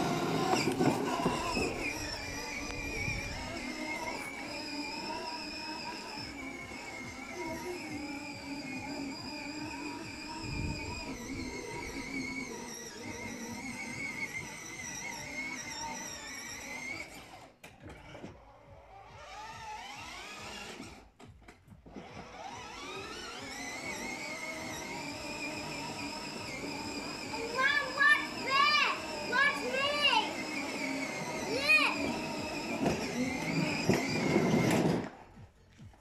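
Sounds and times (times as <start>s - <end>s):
toy car motor whining: 0.0s - 35.3s.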